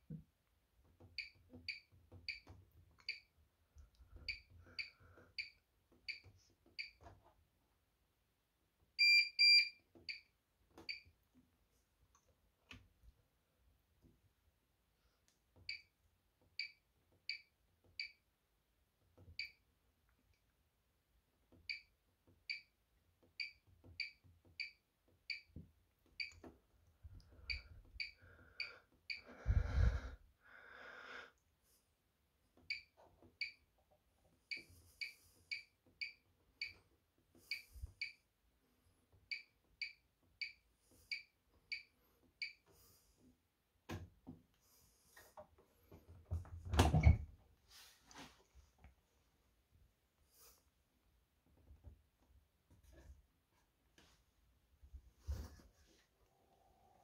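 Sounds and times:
washing machine button beeps: 9.0 - 10.3, 23.4 - 25.5, 26.2 - 26.4.

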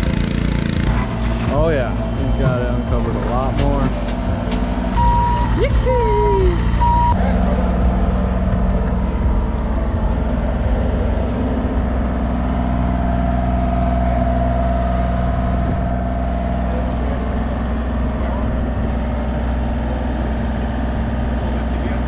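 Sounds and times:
diesel engine running: 0.0 - 22.0
backup alarm beeping: 5.0 - 5.8, 6.6 - 7.2.

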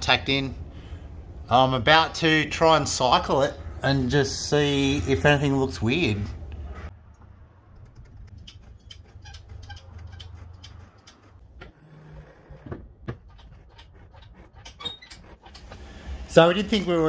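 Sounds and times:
light clicks and creaks: 6.5 - 11.8.

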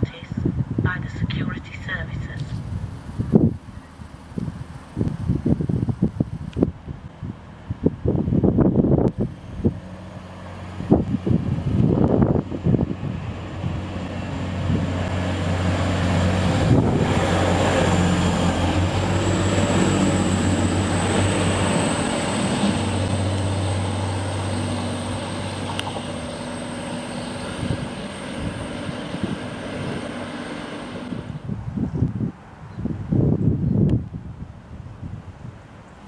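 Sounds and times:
diesel train passing: 0.0 - 33.1
rail noise: 0.0 - 33.4.

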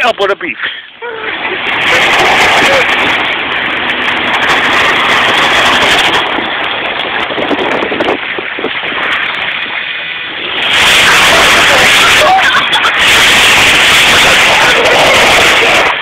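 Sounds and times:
wind rushing through window: 1.0 - 16.0
vehicle driving on rough ground: 1.1 - 16.0.

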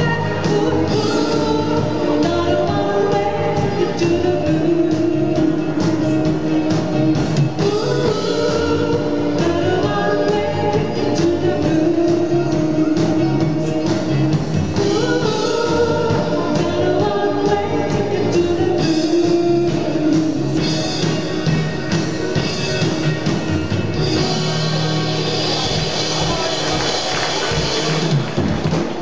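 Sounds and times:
woman singing: 0.0 - 6.7, 7.6 - 14.2, 14.8 - 21.0
live dance band playing: 0.0 - 29.0.

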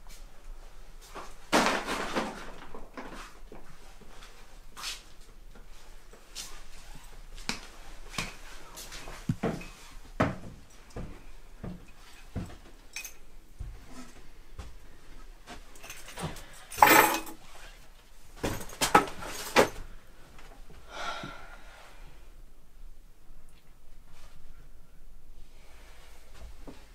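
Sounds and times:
objects clattering: 1.5 - 3.2, 15.8 - 17.5, 18.4 - 19.8
objects knocking and clinking: 15.8 - 17.4.

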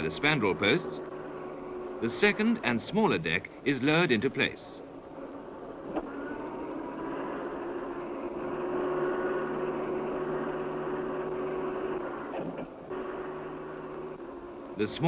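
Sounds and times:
crane hoist motor whirring: 0.0 - 3.3, 4.8 - 15.0.

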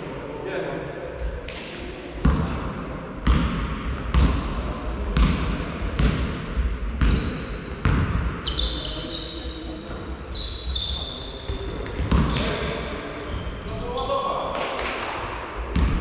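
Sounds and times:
basketball bouncing on gym floor: 2.2 - 2.6, 3.2 - 8.4, 10.8 - 12.6, 15.7 - 16.0
sneakers squeaking on court: 7.0 - 14.1.

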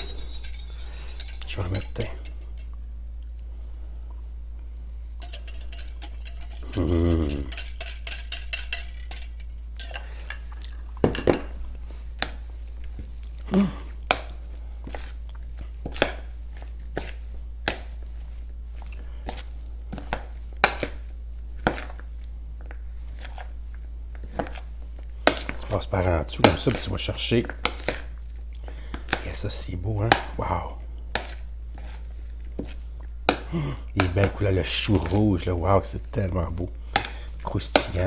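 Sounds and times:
spoon scraping and clinking bowl: 0.0 - 2.8, 5.2 - 11.8
steady low hum: 0.0 - 38.0.

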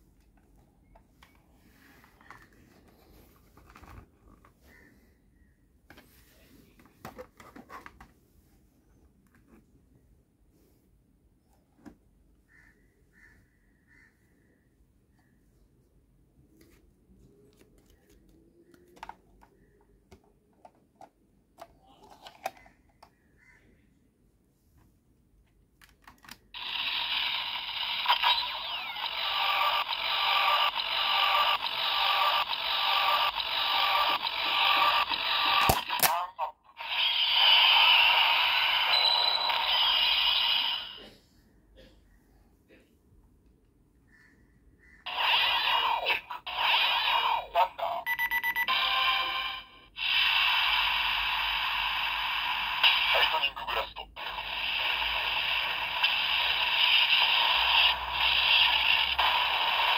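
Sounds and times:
toy electronic standby loop: 26.6 - 41.0, 45.1 - 59.9
fast pulsing beep: 48.1 - 48.7.

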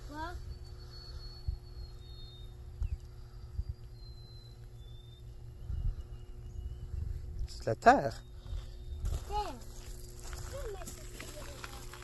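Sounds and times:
faint high whistles: 0.1 - 7.3
wind rumble on microphone: 0.3 - 4.2, 5.4 - 7.6.

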